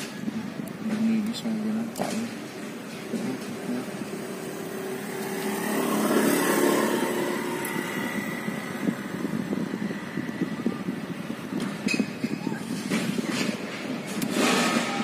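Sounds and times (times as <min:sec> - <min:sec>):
vehicle engine running: 0:02.4 - 0:11.8.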